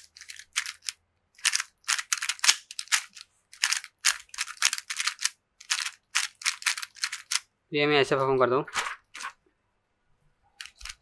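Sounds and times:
puzzle cube layers clacking: 0.0 - 7.4, 10.6 - 11.0.

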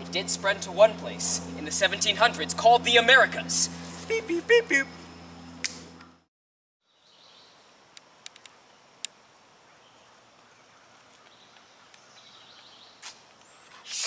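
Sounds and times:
open air hiss: 6.9 - 14.0.

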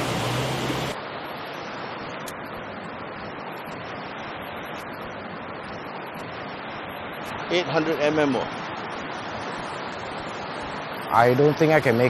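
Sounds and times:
truck engine hum: 0.0 - 1.0
rocky stream rushing: 0.0 - 12.0.

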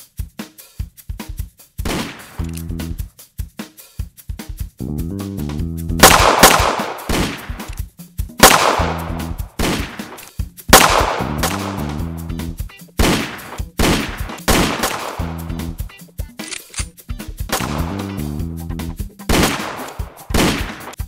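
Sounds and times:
gunshots with echo: 1.9 - 2.5, 6.0 - 7.8, 8.4 - 12.0, 13.0 - 15.7, 17.5 - 18.2, 19.3 - 21.0
music with pulsing bass: 2.4 - 3.1, 4.7 - 6.6, 8.7 - 9.6, 10.6 - 13.1, 13.7 - 16.3, 17.1 - 19.4.

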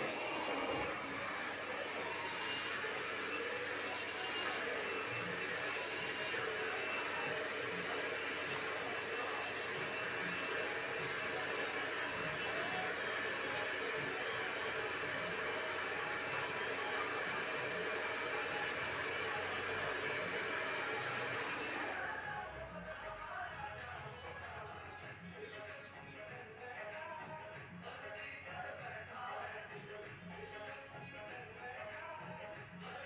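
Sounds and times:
hair dryer blowing air: 0.0 - 22.4.

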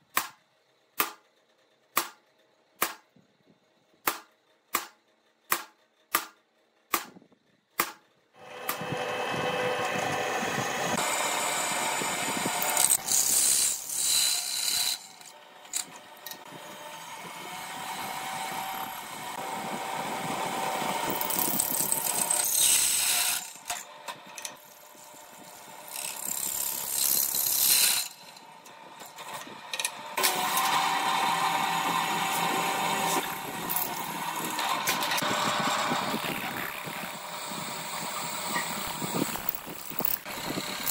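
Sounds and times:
drill press drilling steel: 8.5 - 17.2, 29.1 - 40.9.

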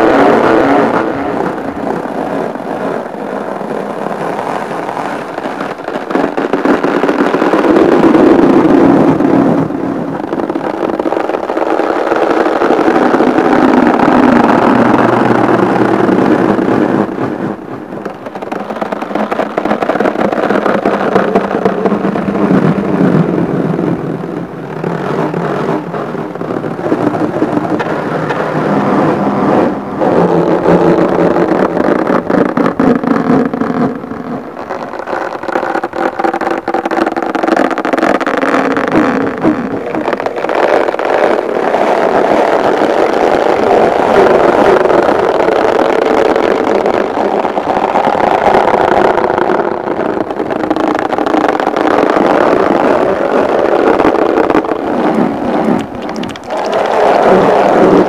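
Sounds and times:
fingers rubbing a balloon: 24.8 - 58.0
fingers tapping a balloon: 55.6 - 56.8.

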